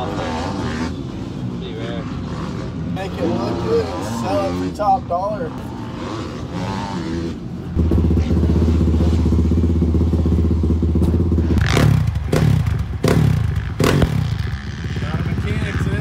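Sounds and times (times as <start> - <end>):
dirt bike engine revving: 0.0 - 16.0
dirt bike engine idling: 6.7 - 16.0.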